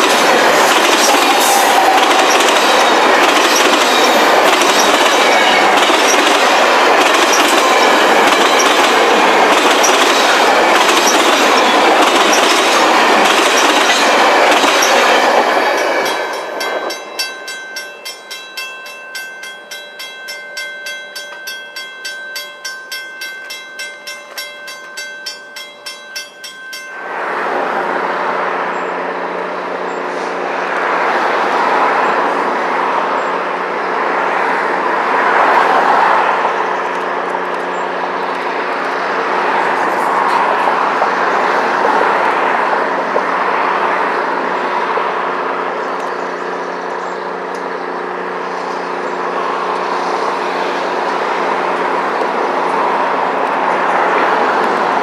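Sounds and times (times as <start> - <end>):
train wheels clicking over rail joints: 0.0 - 27.1
distant train drone: 0.0 - 55.0
pulsing ringing bell: 11.0 - 27.4.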